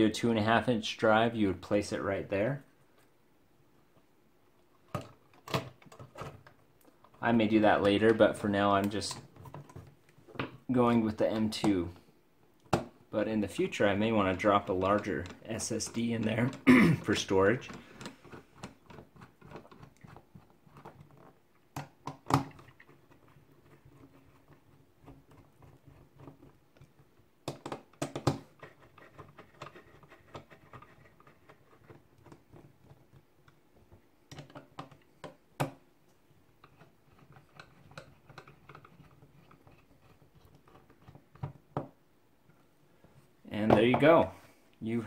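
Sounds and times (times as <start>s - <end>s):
clicks and knocks of handled case: 25.4s - 35.8s.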